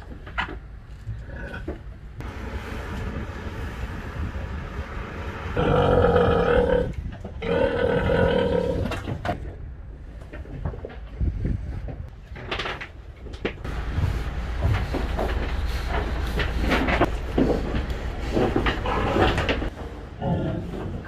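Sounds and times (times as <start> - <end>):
low rumble: 1.0 - 10.3, 13.4 - 20.8.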